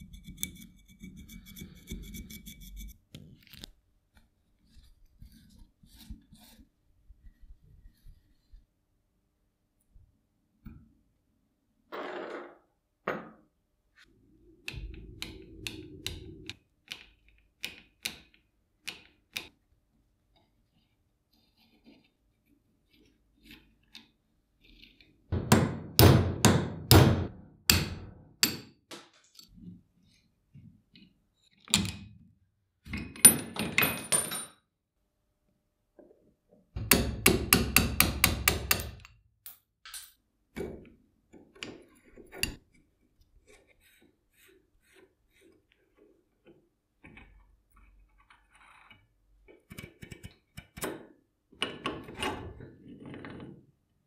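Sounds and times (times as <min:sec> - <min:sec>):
hammer tapping metal: 0:36.8 - 0:39.2.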